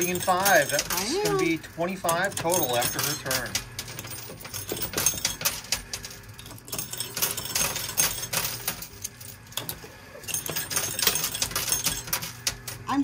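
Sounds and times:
machine low hum: 0.0s - 13.0s
tokens clinking and clattering: 0.0s - 13.0s.

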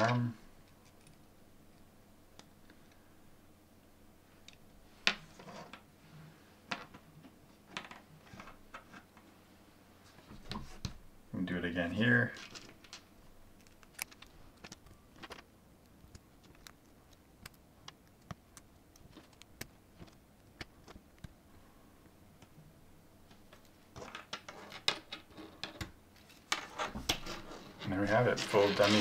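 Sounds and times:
plastic parts clicking together: 13.6s - 21.3s.

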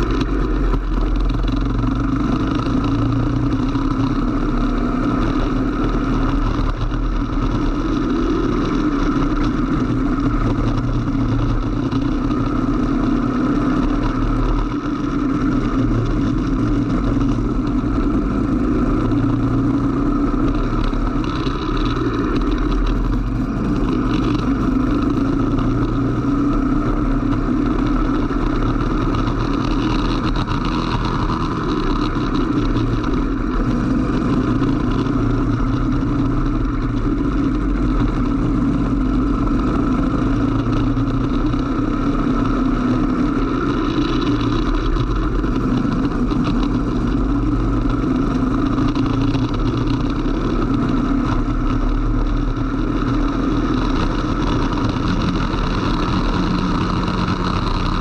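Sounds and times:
kart engine running hard: 0.0s - 58.0s.

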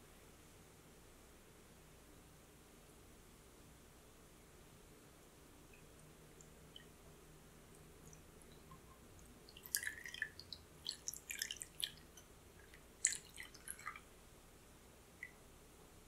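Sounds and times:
liquid splashing and dripping: 5.7s - 7.0s, 7.7s - 14.1s
cream pouring through a strainer: 9.4s - 14.0s.

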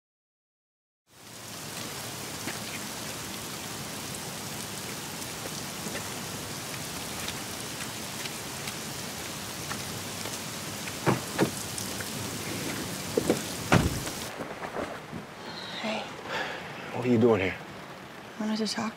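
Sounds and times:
heavy rain pouring: 1.1s - 18.9s
knocks and thumps: 10.9s - 11.6s, 12.7s - 15.3s.

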